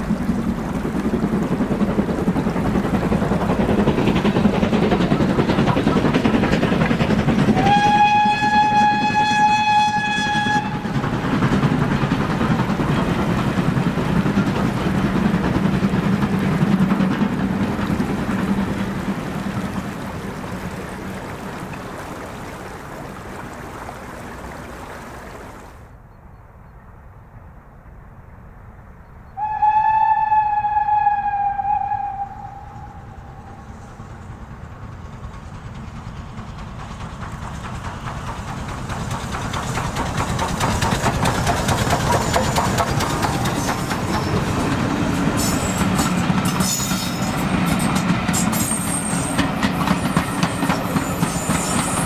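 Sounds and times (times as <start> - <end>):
steam locomotive running: 0.0 - 25.8, 29.4 - 52.0
steam whistle blast: 7.5 - 11.0, 29.4 - 33.8.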